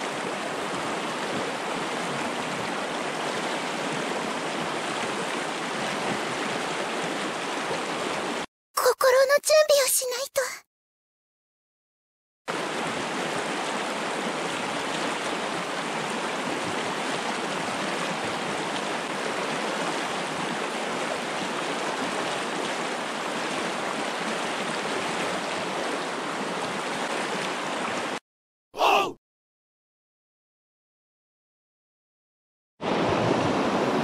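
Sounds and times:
river rushing over stones: 0:00.0 - 0:08.5, 0:12.5 - 0:28.2, 0:32.8 - 0:34.0.

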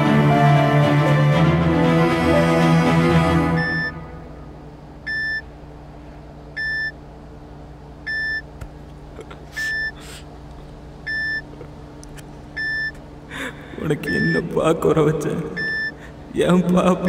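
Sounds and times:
low steady hum: 0:00.0 - 0:17.0
patient monitor beeping: 0:03.6 - 0:04.0, 0:05.0 - 0:05.5, 0:06.6 - 0:07.0, 0:08.0 - 0:08.5, 0:09.6 - 0:10.0, 0:11.0 - 0:11.5, 0:12.5 - 0:13.0, 0:13.7 - 0:16.2.

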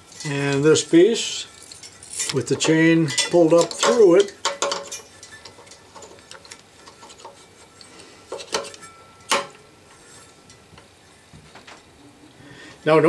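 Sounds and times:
metal chain clinking: 0:00.0 - 0:09.6.

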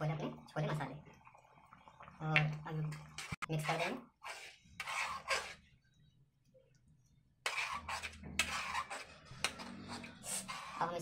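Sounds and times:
metal ladle stirring curry: 0:02.9 - 0:05.8, 0:07.4 - 0:11.0.

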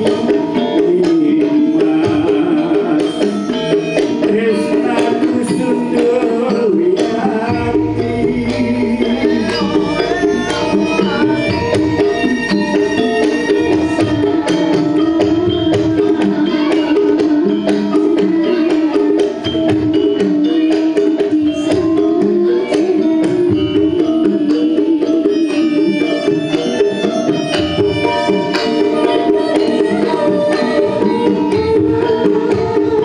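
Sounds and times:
person singing: 0:00.0 - 0:27.2, 0:28.0 - 0:33.0
gamelan instruments: 0:00.0 - 0:33.0
hand drum beats: 0:00.0 - 0:33.0.

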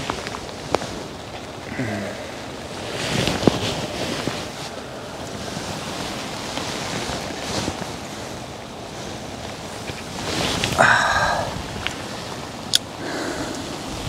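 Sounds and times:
rain falling: 0:00.0 - 0:14.0
wind buffeting microphone: 0:00.0 - 0:14.0.

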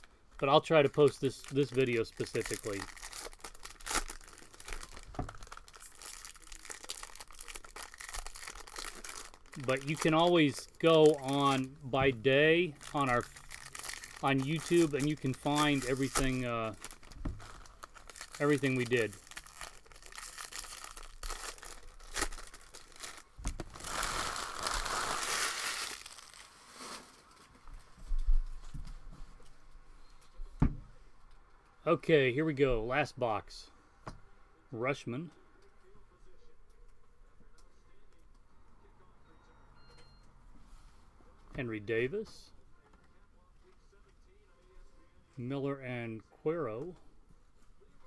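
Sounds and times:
foil wrapper crinkling: 0:00.0 - 0:27.4.

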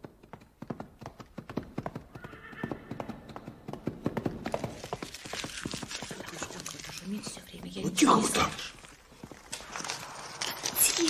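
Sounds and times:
horse hooves clopping: 0:00.0 - 0:11.0
horse neighing: 0:02.1 - 0:03.2
foil crinkling: 0:04.6 - 0:11.0.

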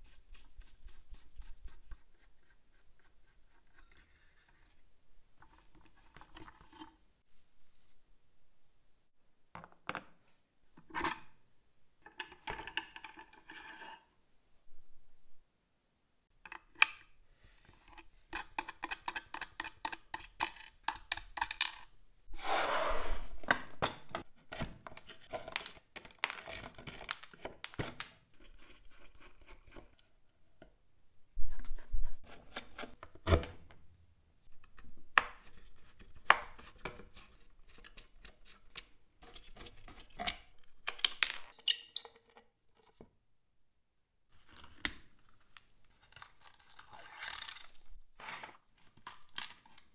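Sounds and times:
scraping and rubbing: 0:22.3 - 0:23.5.

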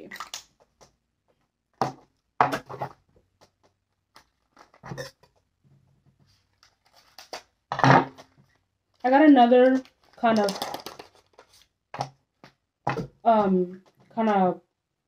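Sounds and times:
package rustling: 0:08.2 - 0:11.8.

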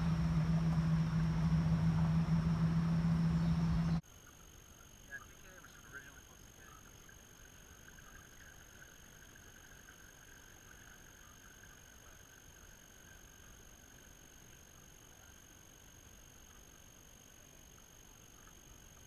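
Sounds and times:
electric outboard motors humming: 0:00.0 - 0:04.0
faint steady hiss: 0:00.0 - 0:19.0.

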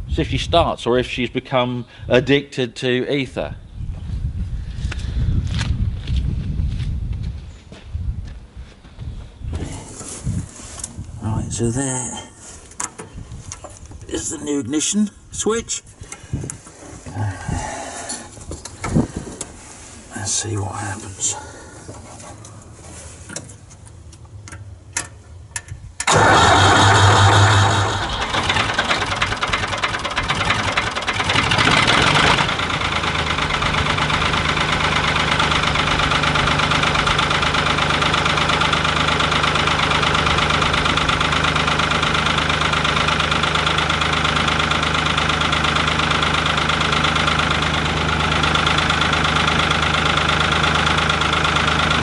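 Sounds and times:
diesel tractor engine starting and idling: 0:26.0 - 0:52.0.

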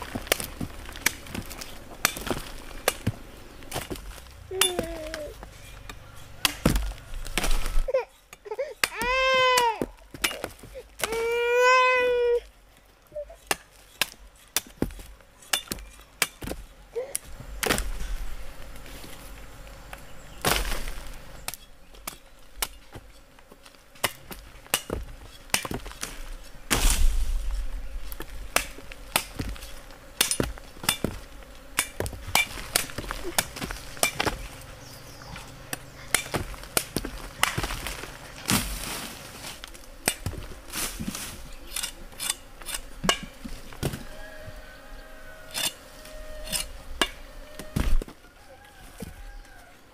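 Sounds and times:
machete chopping roots: 0:00.0 - 0:11.5, 0:13.4 - 0:18.0, 0:20.4 - 0:23.2, 0:24.0 - 0:27.4, 0:28.1 - 0:34.6, 0:35.3 - 0:44.1.

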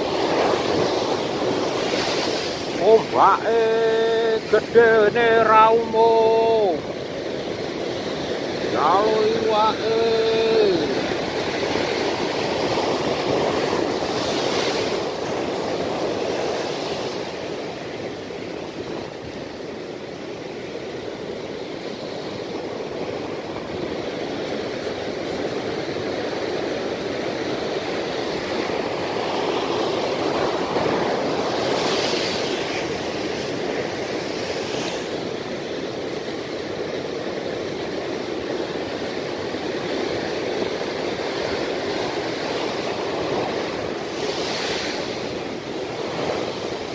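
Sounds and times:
ocean surf breaking on shore: 0:00.0 - 0:46.9.

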